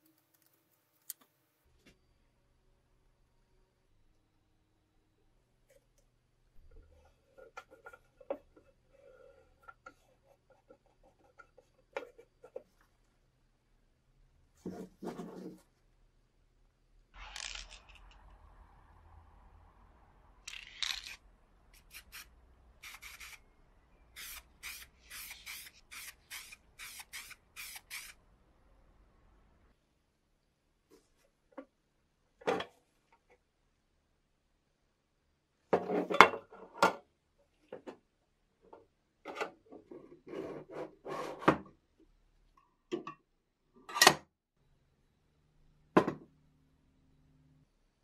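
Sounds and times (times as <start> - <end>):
spray paint can hissing: 21.8 - 23.4, 24.2 - 28.2.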